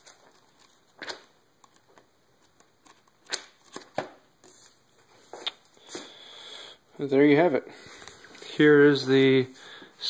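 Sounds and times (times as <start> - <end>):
paper pages flipping: 0.0 - 5.6.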